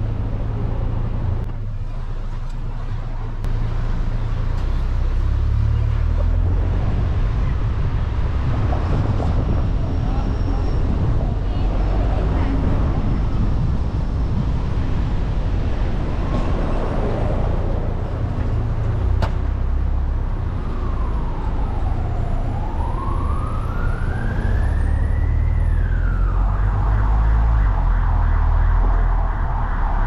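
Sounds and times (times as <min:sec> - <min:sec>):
car driving in traffic: 0:00.0 - 0:30.0
emergency siren wailing: 0:20.1 - 0:30.0.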